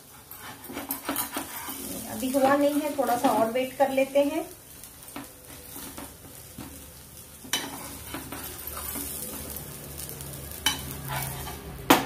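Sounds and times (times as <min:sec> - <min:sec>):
pancake sizzling in oil: 0:00.0 - 0:12.0
metal spatula scraping and knocking pan: 0:00.3 - 0:03.6, 0:07.4 - 0:09.6, 0:10.6 - 0:12.0.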